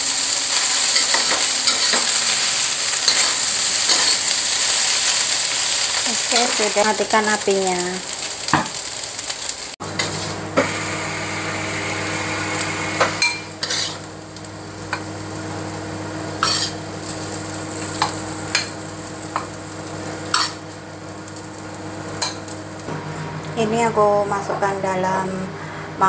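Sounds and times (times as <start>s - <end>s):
metal spatula scraping a wok: 0.5s - 5.6s, 10.0s - 10.4s, 13.1s - 14.1s, 16.4s - 16.8s, 20.3s - 20.7s
steady low hum: 9.8s - 26.0s.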